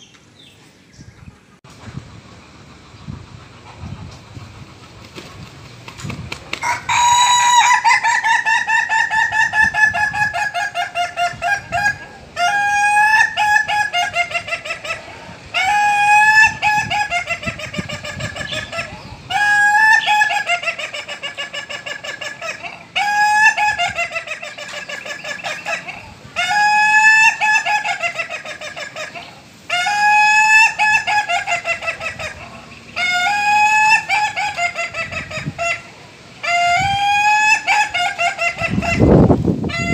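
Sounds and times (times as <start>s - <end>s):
rooster crowing: 6.6s - 8.6s.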